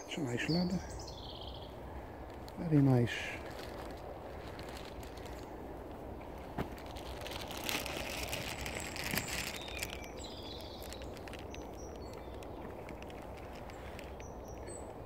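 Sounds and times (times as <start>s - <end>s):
bird chirps: 0.0s - 2.0s, 8.6s - 15.0s
low background noise: 0.0s - 15.0s
footsteps on woodland path: 0.5s - 15.0s.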